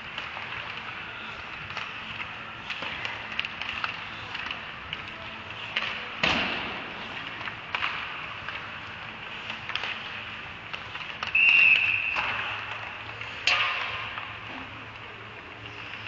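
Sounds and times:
hockey sticks and pucks clacking: 0:00.0 - 0:16.0
puck banging against boards: 0:10.8 - 0:14.4.

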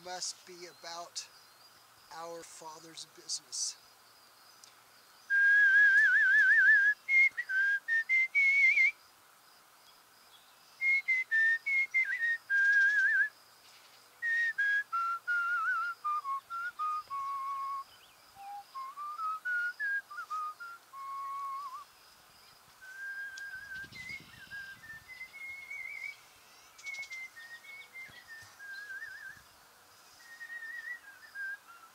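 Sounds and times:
man whistling a tune: 0:05.3 - 0:09.0, 0:10.8 - 0:13.3, 0:14.2 - 0:17.8, 0:18.4 - 0:21.9, 0:22.8 - 0:26.2, 0:26.8 - 0:29.4, 0:30.2 - 0:31.9.

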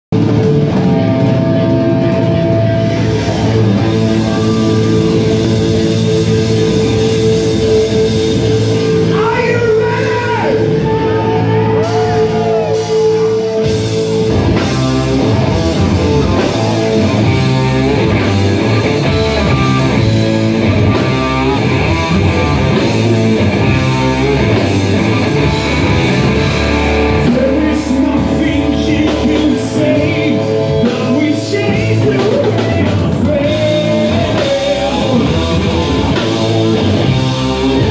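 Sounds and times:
electric bass: 0:00.0 - 0:37.9
drum kit: 0:00.1 - 0:37.9
electric guitar: 0:00.1 - 0:37.9
man singing: 0:27.1 - 0:36.2.

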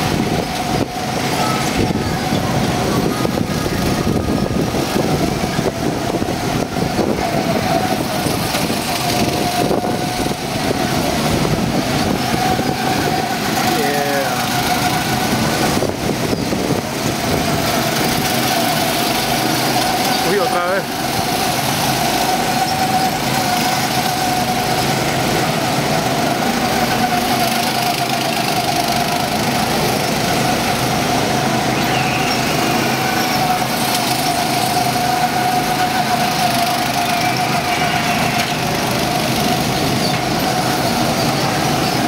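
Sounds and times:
go-kart engines droning: 0:00.0 - 0:42.0.

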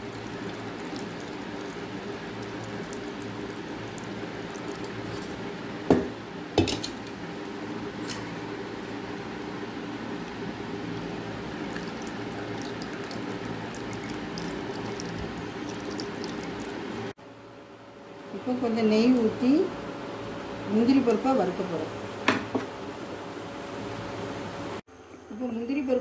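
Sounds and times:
liquid trickling into a bowl: 0:00.0 - 0:05.4, 0:10.3 - 0:17.1.

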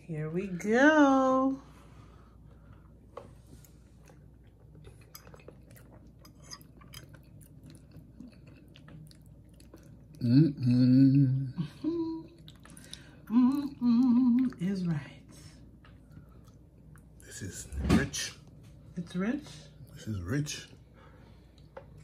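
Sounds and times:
chewing: 0:03.5 - 0:10.2, 0:12.2 - 0:14.6, 0:15.8 - 0:17.2
person humming mmm: 0:10.2 - 0:12.4, 0:13.3 - 0:14.6.

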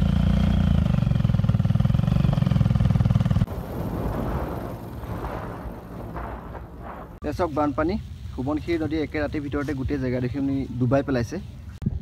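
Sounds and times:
faint rumbling noise: 0:01.3 - 0:12.0.

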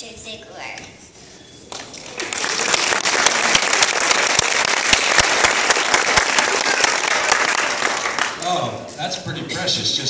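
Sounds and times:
audience applauding: 0:01.7 - 0:08.5
sharp close claps: 0:01.7 - 0:08.5.

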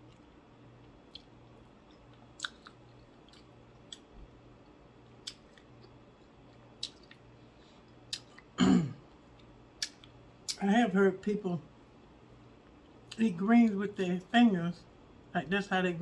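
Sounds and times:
quiet chewing: 0:00.0 - 0:08.6
faint steady hum: 0:00.0 - 0:16.0
lip smacks and tongue clicks: 0:00.1 - 0:07.3, 0:07.9 - 0:08.5, 0:09.3 - 0:10.6.

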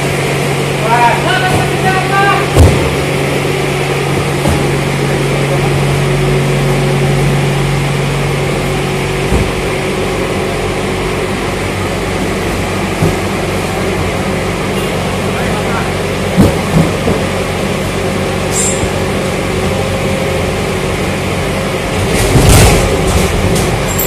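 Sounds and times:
loud machine noise: 0:00.0 - 0:24.0
low motor hum: 0:00.0 - 0:24.0.

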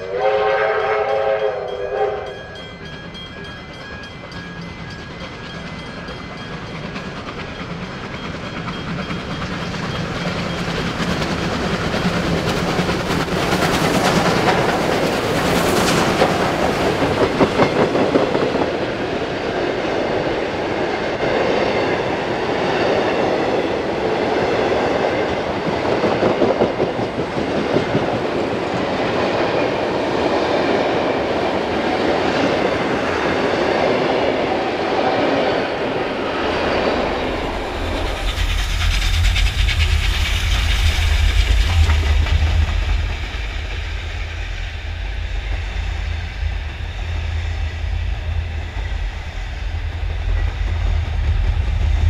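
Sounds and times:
deep train rumble: 0:00.0 - 0:52.0
train wheels clattering over rail joints: 0:02.8 - 0:21.3, 0:36.4 - 0:44.8
hiss: 0:36.4 - 0:52.0.

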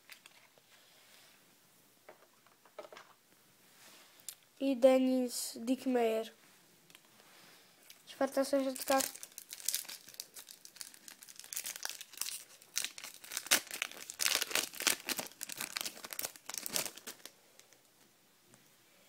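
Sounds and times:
foil wrapper tearing and crinkling: 0:08.6 - 0:17.7.

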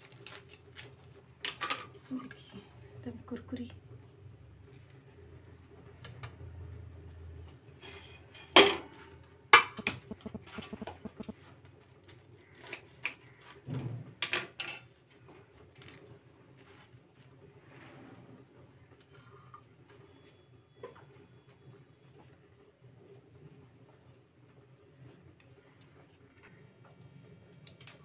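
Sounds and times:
steel dishes and utensils clattering: 0:14.2 - 0:15.0.

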